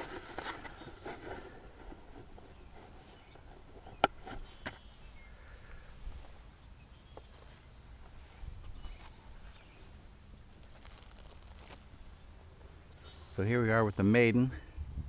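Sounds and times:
rustling of gear being handled: 0:10.6 - 0:12.0.

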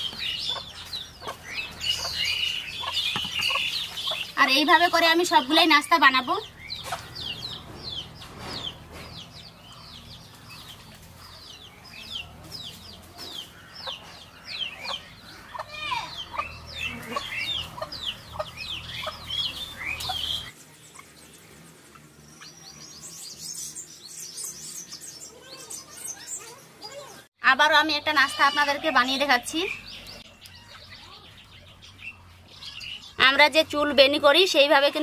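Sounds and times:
chickens clucking: 0:00.0 - 0:21.2
chicks peeping: 0:00.0 - 0:27.2.

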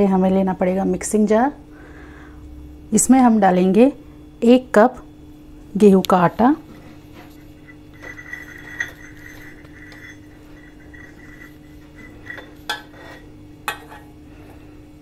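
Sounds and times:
steady low hum: 0:00.0 - 0:15.0
steel cup clinking on metal jar: 0:07.6 - 0:14.0.

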